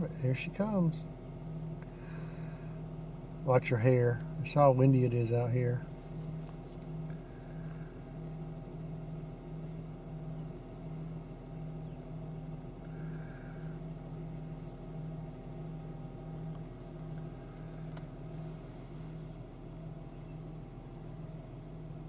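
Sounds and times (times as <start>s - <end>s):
vehicle engine idling: 0.0s - 22.0s.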